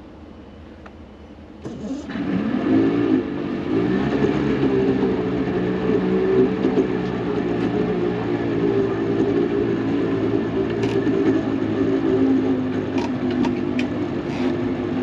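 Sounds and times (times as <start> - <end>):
outboard motor starting and idling: 1.6 - 8.2.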